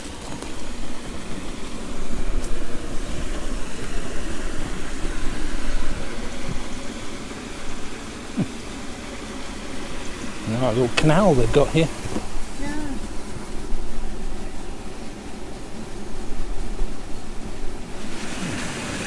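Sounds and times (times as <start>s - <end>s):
water rushing: 0.0s - 13.0s, 18.0s - 19.0s.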